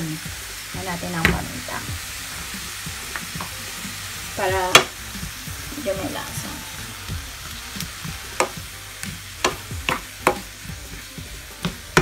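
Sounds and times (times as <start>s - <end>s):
leeks sizzling in a pan: 0.0s - 12.0s
spatula knocking against pan: 9.4s - 10.5s.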